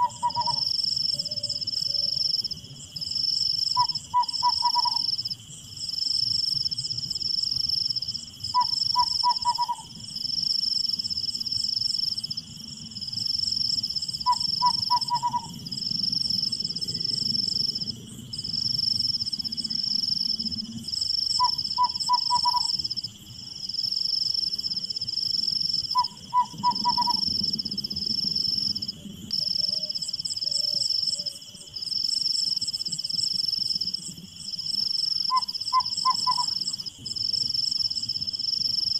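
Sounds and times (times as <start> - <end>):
animal call notes: 0.0 - 2.2, 3.8 - 5.1, 8.6 - 9.9, 14.3 - 15.6, 21.4 - 22.8, 26.0 - 27.3, 35.3 - 36.7
insects trilling: 0.0 - 38.9.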